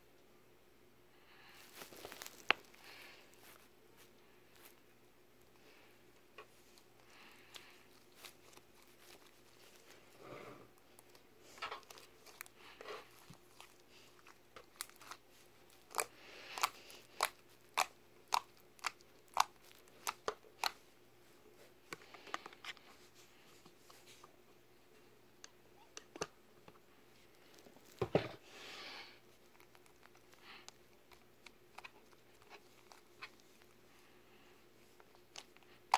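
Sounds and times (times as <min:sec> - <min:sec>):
slime squelch: 0:01.5 - 0:04.9, 0:06.4 - 0:20.8
slime popping and crackling: 0:01.7 - 0:02.8, 0:13.1 - 0:20.8.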